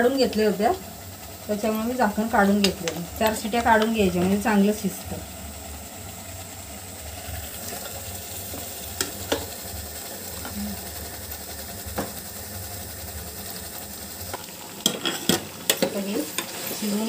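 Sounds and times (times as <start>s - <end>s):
paste sizzling in oil: 0.0s - 17.0s.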